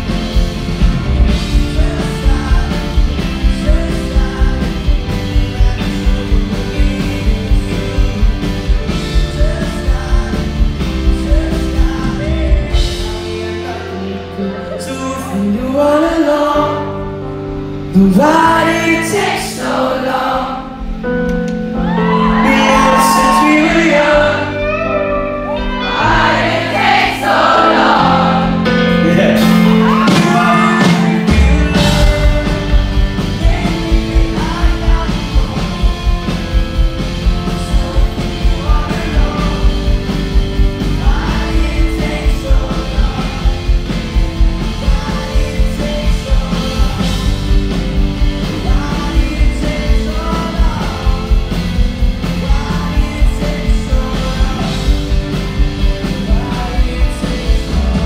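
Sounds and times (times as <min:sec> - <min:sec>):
steady drum beat: 0:00.0 - 0:13.7, 0:26.0 - 0:58.0
man singing: 0:00.0 - 0:21.0, 0:22.0 - 0:26.6, 0:28.0 - 0:58.0
electric piano: 0:00.0 - 0:58.0.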